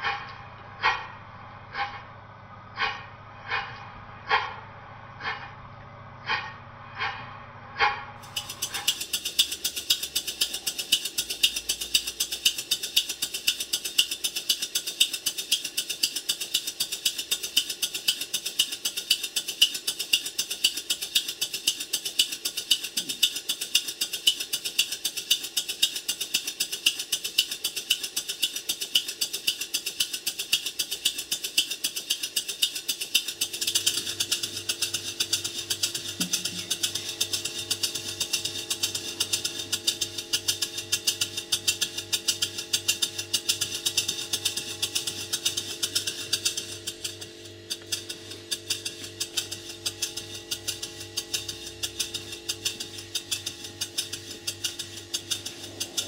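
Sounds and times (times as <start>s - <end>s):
low steady hum: 0.0s - 9.2s
model steam engine chuffing: 2.8s - 3.7s, 7.8s - 56.0s.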